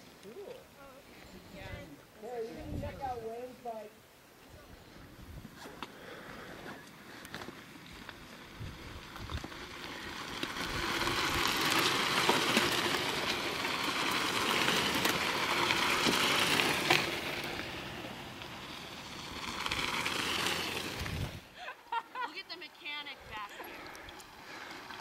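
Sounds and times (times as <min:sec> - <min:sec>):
bike tyres crunching on gravel: 0:05.4 - 0:25.0
bike ticks and rattles: 0:05.6 - 0:21.6, 0:22.6 - 0:25.0.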